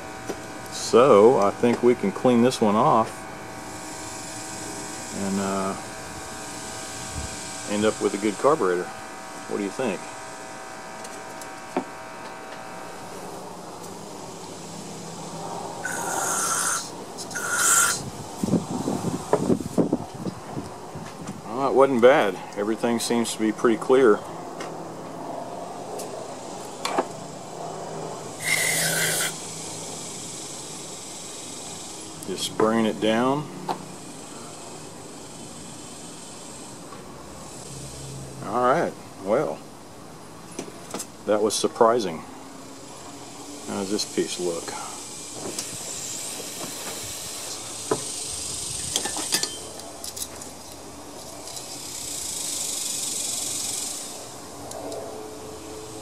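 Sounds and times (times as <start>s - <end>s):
steady high hiss: 0.0s - 56.0s
aerosol spray hiss: 15.8s - 19.2s, 28.4s - 32.1s, 44.4s - 49.3s.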